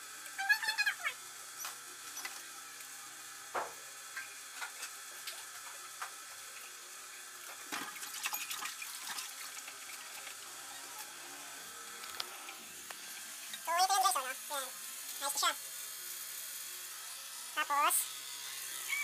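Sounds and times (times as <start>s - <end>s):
tap water running: 1.6s - 15.6s.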